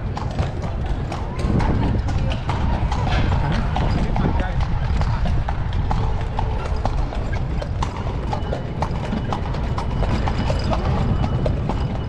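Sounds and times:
hooves clip-clopping on stone: 0:00.0 - 0:12.0.

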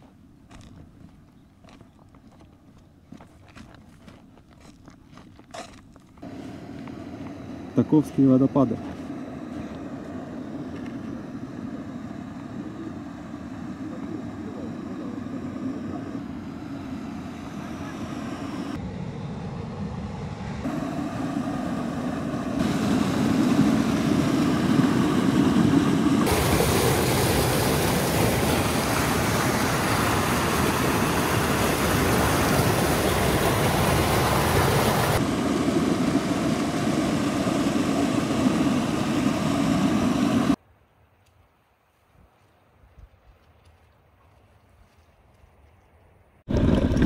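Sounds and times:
waterfall rushing: 0:26.2 - 0:36.9.

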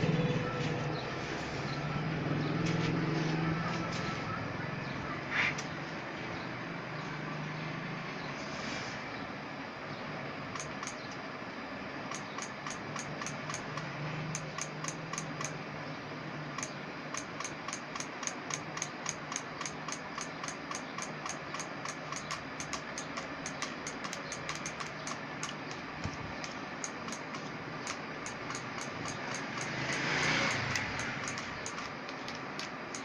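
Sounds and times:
steady hum and hiss: 0:00.0 - 0:33.0
fast mechanical ticking: 0:10.5 - 0:11.1, 0:12.1 - 0:15.6, 0:16.6 - 0:33.0.

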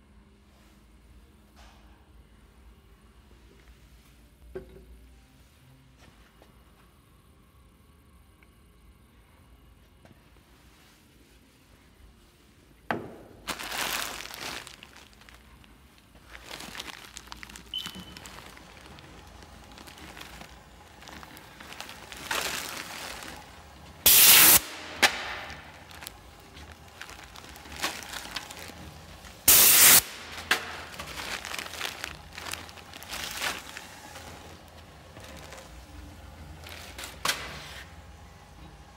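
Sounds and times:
low steady hum: 0:00.0 - 0:38.9
hissing noise bursts: 0:24.0 - 0:25.0, 0:29.5 - 0:30.3.

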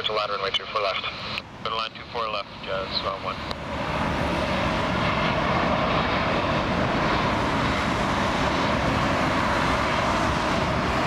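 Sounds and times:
jet airliner engines rushing: 0:00.0 - 0:11.0.

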